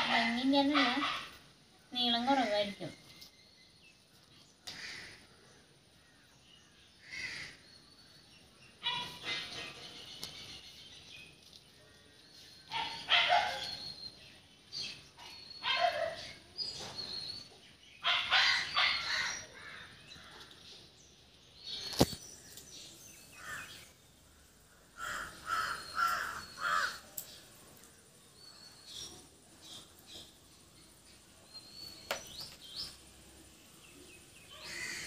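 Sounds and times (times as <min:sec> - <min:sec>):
crow cawing: 0:04.7 - 0:05.2, 0:07.0 - 0:07.6, 0:25.0 - 0:27.0, 0:34.6 - 0:35.0.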